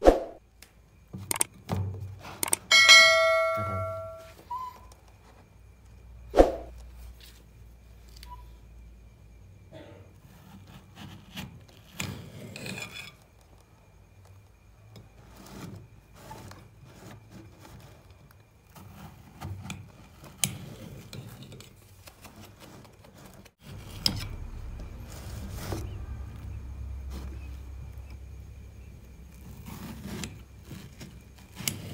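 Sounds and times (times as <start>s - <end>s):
sharp knocks: 2.7s - 4.2s.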